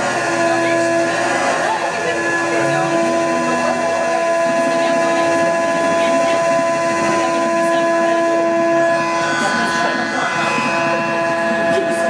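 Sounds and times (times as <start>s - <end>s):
electronic drone music: 0.0s - 12.0s.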